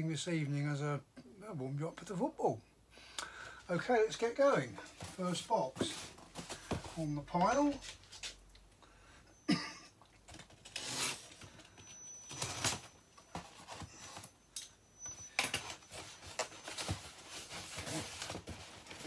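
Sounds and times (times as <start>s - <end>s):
packing tape pulled loose: 10.4s - 11.4s
cardboard scraping and rustling: 15.7s - 19.0s.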